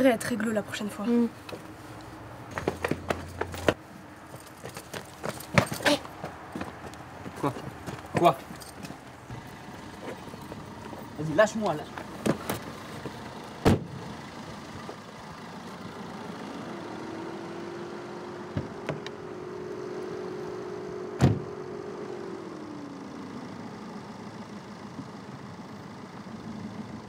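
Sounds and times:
car doors shutting: 8.2 - 12.6, 13.6 - 14.0, 18.5 - 19.2, 21.1 - 21.6.

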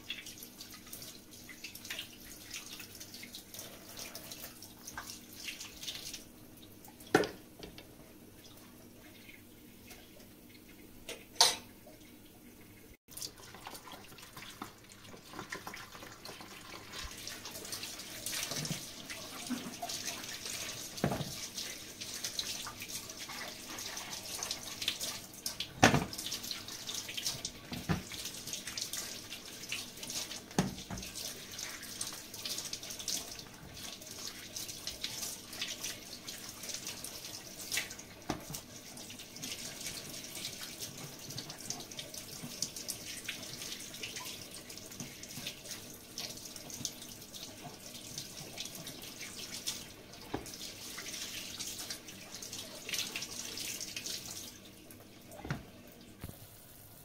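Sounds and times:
water running and splashing: 0.0 - 7.4, 13.1 - 57.0.

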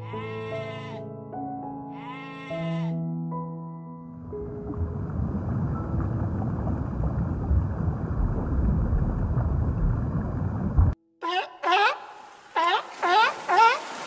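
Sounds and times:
muffled underwater rumble: 4.6 - 11.0.

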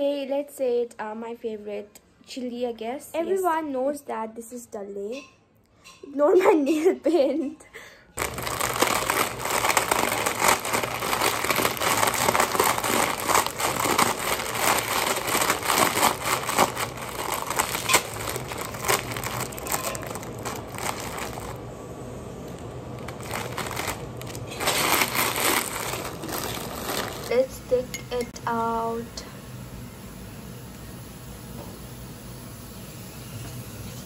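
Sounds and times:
plastic packet crinkling: 8.2 - 21.7, 22.4 - 27.9.

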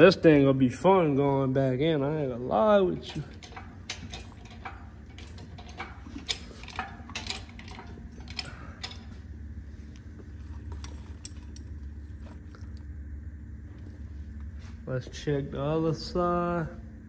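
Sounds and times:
steady low hum: 0.0 - 17.0
metal tools clinking: 2.6 - 9.3, 10.2 - 12.8.

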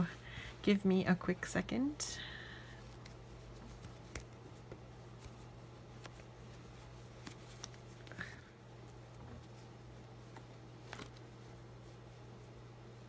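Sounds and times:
steady low hum: 0.0 - 13.0
plush fabric rustling: 2.8 - 13.0.

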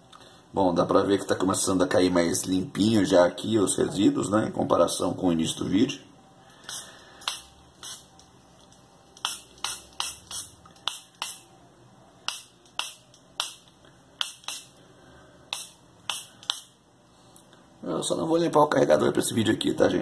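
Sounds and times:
short sharp hissing bursts: 6.6 - 8.1, 9.2 - 11.4, 14.2 - 14.8, 15.5 - 17.3.

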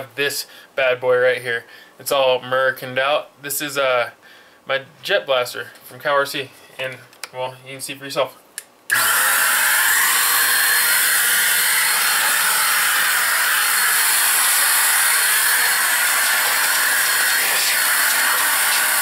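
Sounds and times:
electric air blower running: 8.9 - 19.0.

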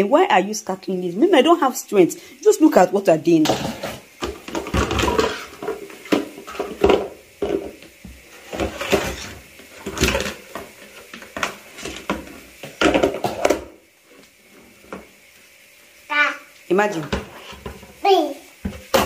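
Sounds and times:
bowls and pot clattering on tiles: 3.3 - 7.8, 8.4 - 13.8.

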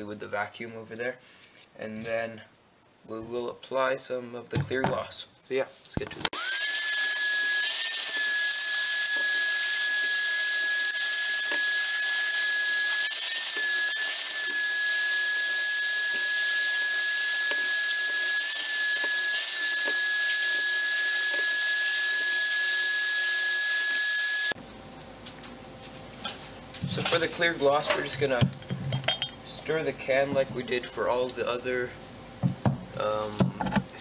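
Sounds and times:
vacuum cleaner running: 6.4 - 24.6.

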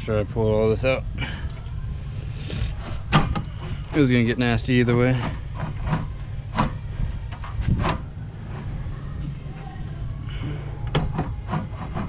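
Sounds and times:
steady low rumble: 0.0 - 11.4
car parts knocking and clicking: 2.8 - 8.7, 10.8 - 12.0.

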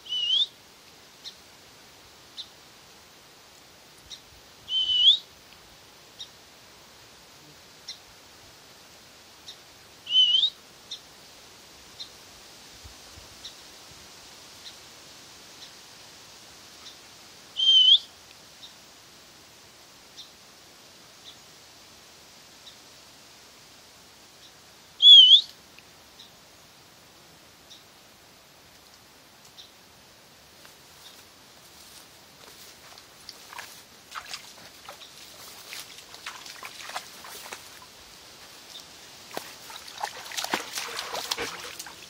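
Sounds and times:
bird whistling note: 4.7 - 5.2, 17.6 - 18.1, 25.0 - 25.5.

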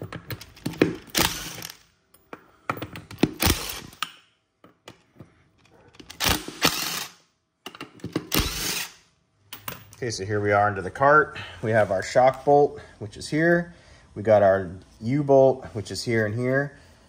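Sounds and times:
impact wrench bursts: 0.6 - 1.8, 3.1 - 4.0, 6.1 - 7.2, 8.1 - 9.0.

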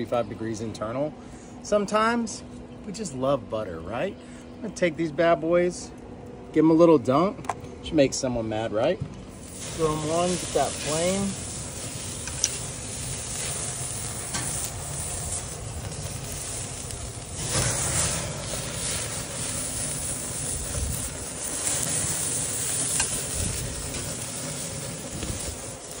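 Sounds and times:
flames flaring: 3.0 - 26.0
meat sizzling on grill: 9.3 - 26.0.

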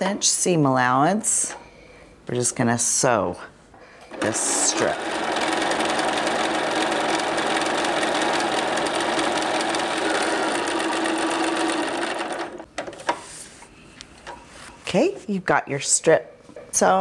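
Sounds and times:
sewing machine running: 4.1 - 12.7.

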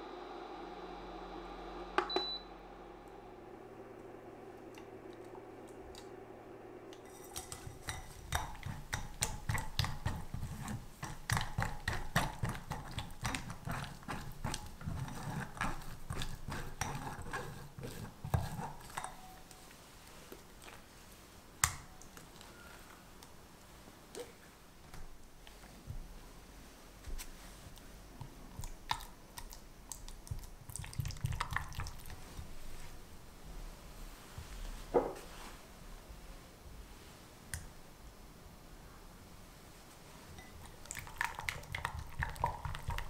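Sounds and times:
spatula scraping through sieve: 6.9 - 20.8
knock: 34.9 - 35.2.

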